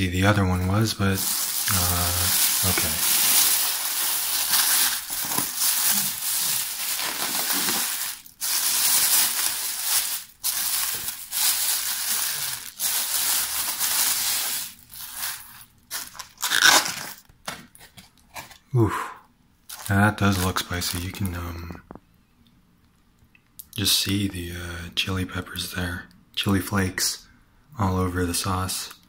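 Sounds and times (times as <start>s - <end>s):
plastic bag crinkling: 0.1s - 18.5s, 19.7s - 21.4s
sharp crackle: 1.2s - 17.2s.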